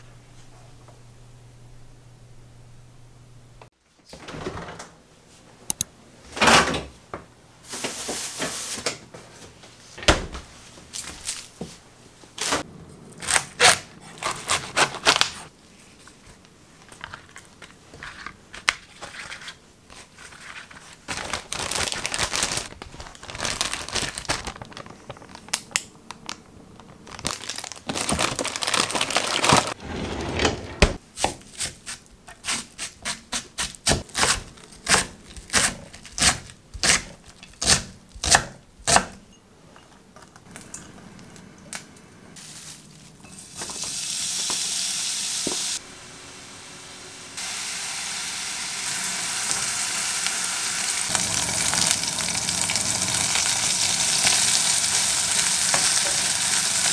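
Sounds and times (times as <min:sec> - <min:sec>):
packaging crinkling and tearing: 0:13.2 - 0:15.5, 0:20.1 - 0:29.8.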